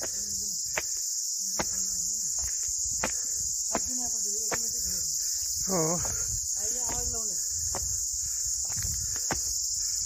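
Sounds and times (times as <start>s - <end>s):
insects chirring chorus: 0.0s - 10.0s.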